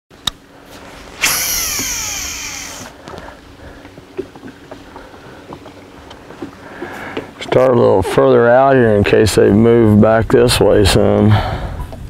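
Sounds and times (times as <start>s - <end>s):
fishing reel spool whirring: 0.9s - 3.0s.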